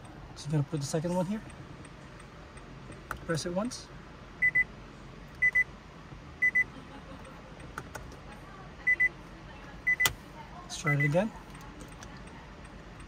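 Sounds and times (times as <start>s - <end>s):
electronic warning beeper double beeps: 4.4s - 4.7s, 5.4s - 5.7s, 6.4s - 6.7s, 8.8s - 9.2s, 9.8s - 10.2s, 10.8s - 11.2s.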